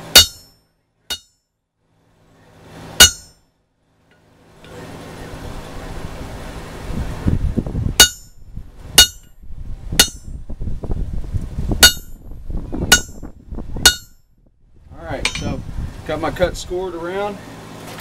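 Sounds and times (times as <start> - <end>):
hammer striking hot metal: 0.0 - 1.4, 3.0 - 3.4, 8.0 - 8.4, 9.0 - 9.4, 10.0 - 10.3, 11.8 - 12.2, 12.9 - 13.2, 13.8 - 14.2, 15.2 - 15.6.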